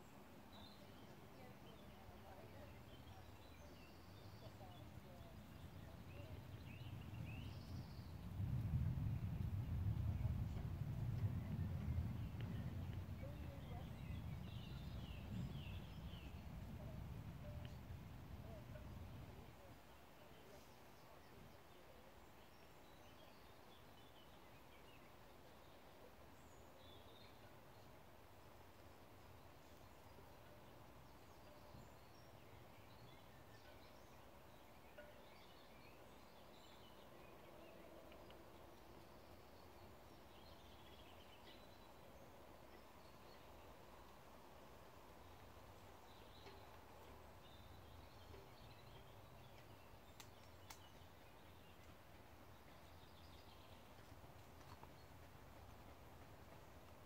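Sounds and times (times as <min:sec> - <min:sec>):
distant small birds singing: 0:00.0 - 0:57.0
faint outdoor background noise: 0:00.0 - 0:57.0
low steady rumble: 0:02.0 - 0:19.8
faint clicks: 0:37.9 - 0:39.1, 0:48.2 - 0:57.0.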